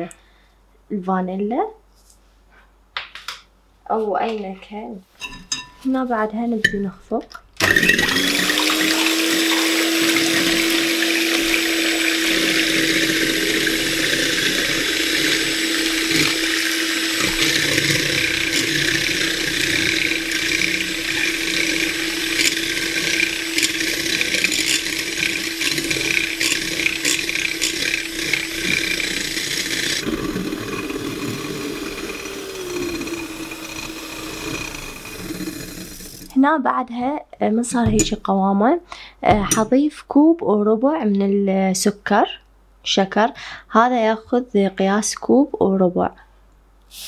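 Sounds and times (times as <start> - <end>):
beaters whipping eggs: 7.6 - 36.3
electric hand mixer whining: 7.6 - 36.3.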